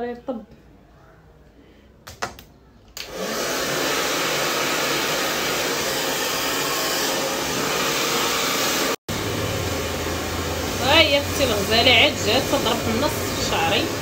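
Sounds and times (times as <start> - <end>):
hair dryer blowing: 3.0 - 14.0.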